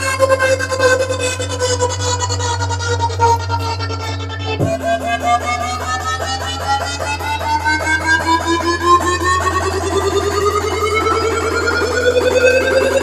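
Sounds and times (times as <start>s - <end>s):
low drone: 0.0s - 13.0s
fast repeating pulse: 0.5s - 13.0s
rising melodic line: 4.3s - 13.0s.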